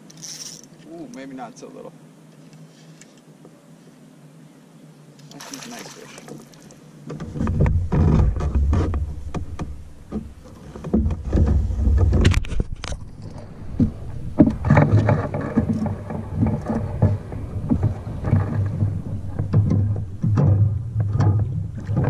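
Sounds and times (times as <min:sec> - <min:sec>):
knocks and clicks: 0:07.1 - 0:22.0
camera handling rumble: 0:11.1 - 0:13.5.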